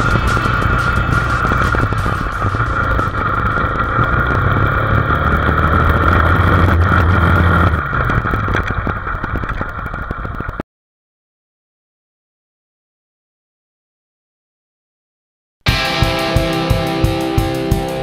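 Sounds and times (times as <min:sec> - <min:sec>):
motorcycle engine running: 0:00.0 - 0:10.6, 0:15.7 - 0:18.0.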